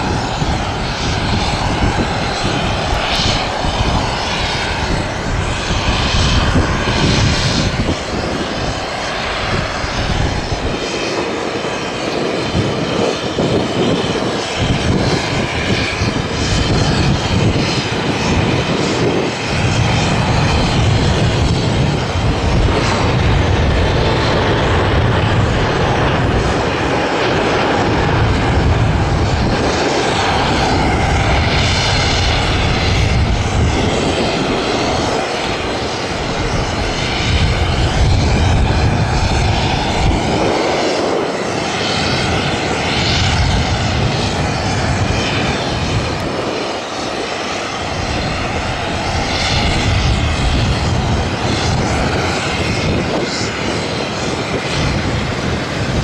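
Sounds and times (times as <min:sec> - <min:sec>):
jet engines running loudly: 0:00.0 - 0:56.0.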